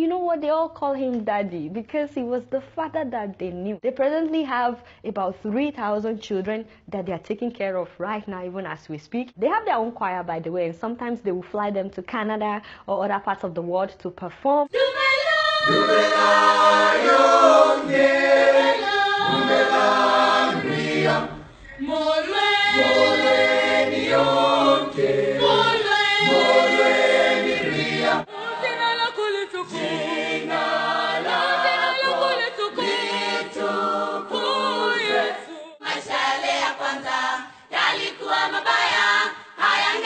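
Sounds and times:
choir singing: 14.7 - 40.0.

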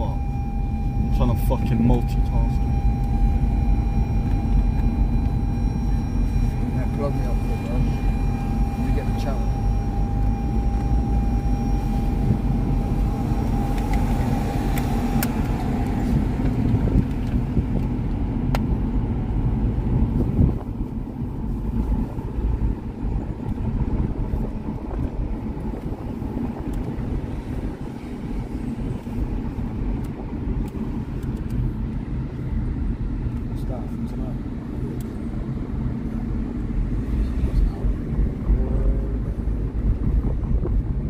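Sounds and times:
faint steady tone: 0.0 - 15.9
road and engine rumble in car: 0.0 - 41.0.

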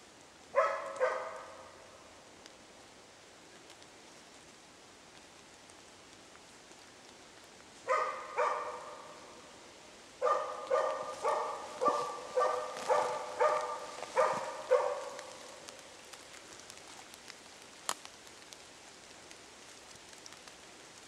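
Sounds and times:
dog barking with echo: 0.6 - 1.7, 7.9 - 9.2, 10.2 - 15.8.

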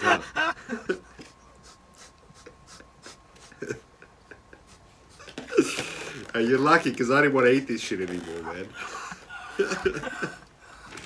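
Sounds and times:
breathy laughter: 0.0 - 6.3, 8.8 - 11.0.

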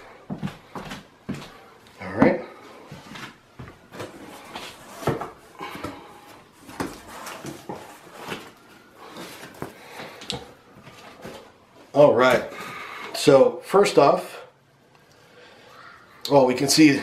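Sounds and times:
cardboard scraping and rustling: 6.2 - 9.8.

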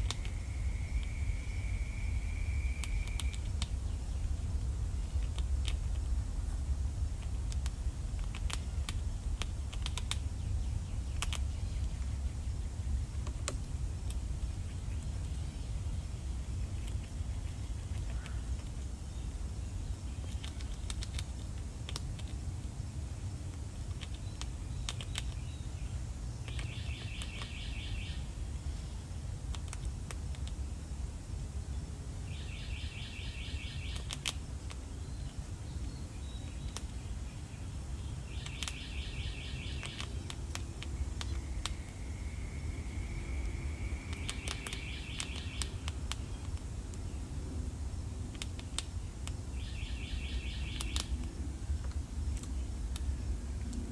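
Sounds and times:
squirrel gnawing corn clicks: 0.0 - 32.4, 33.7 - 53.9
low background rumble: 0.0 - 53.9
bird trilled call: 26.5 - 28.3, 38.3 - 40.2, 41.2 - 45.8, 49.6 - 51.1.

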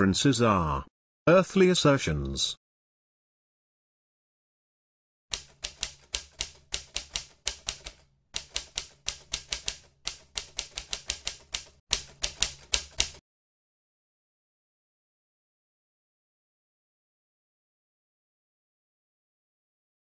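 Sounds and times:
typewriter keystrokes clacking: 5.3 - 13.2.

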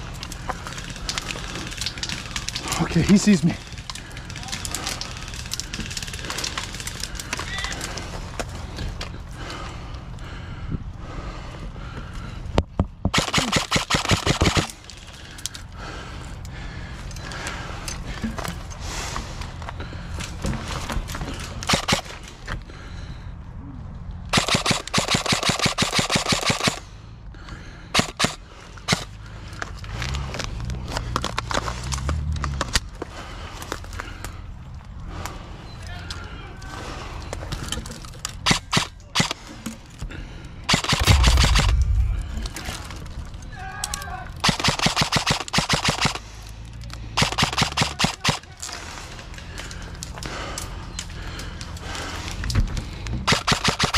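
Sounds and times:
airsoft rifle shots: 13.1 - 14.8, 21.6 - 22.2, 24.3 - 26.8, 28.0 - 29.1, 38.4 - 39.4, 40.7 - 42.7, 44.4 - 46.2, 47.2 - 48.4, 53.3 - 53.9.

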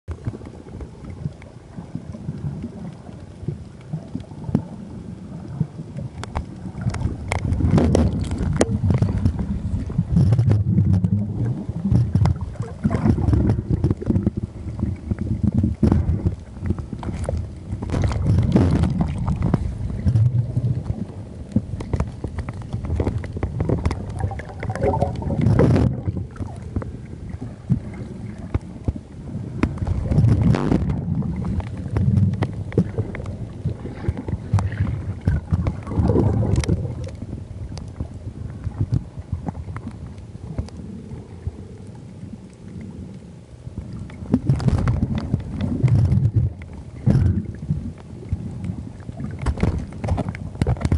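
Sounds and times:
water rumbling and sloshing: 0.0 - 50.9
small sharp clicks and crackles: 0.1 - 50.9.

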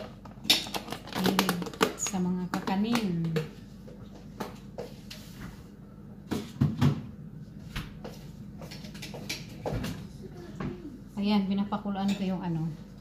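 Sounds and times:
kitchen knocks and clicks: 0.0 - 3.6.

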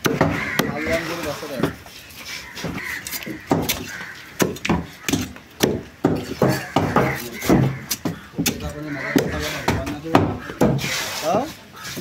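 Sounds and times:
cleaver chopping on wooden block: 0.0 - 1.0, 2.6 - 10.9.

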